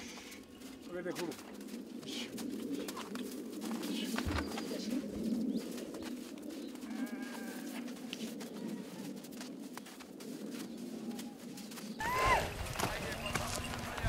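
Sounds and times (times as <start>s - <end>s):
hooves and footsteps on snow: 0.0s - 14.0s
person calling: 12.0s - 12.6s.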